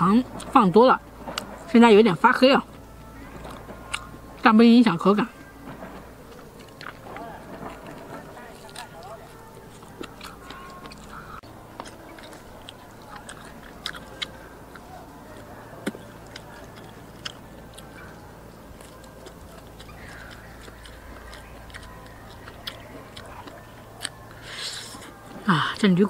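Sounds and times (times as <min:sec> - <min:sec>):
chewing meat off a bone: 0:06.3 - 0:25.4.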